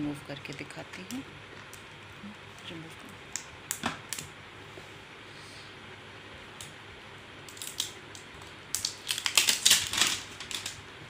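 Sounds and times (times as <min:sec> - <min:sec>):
plastic film peeling and crinkling: 0:07.5 - 0:10.8.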